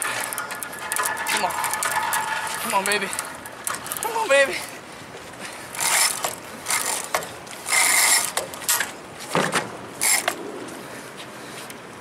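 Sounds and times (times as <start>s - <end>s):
fishing reel ratcheting: 0.0s - 4.5s, 5.7s - 8.8s, 10.0s - 10.4s.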